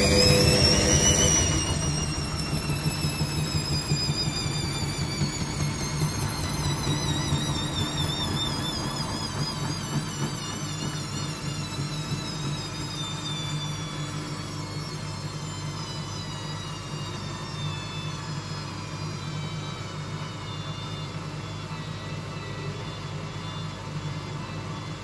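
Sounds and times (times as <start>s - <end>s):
low hum: 0.0s - 9.6s
washing machine motor whine: 0.0s - 25.0s.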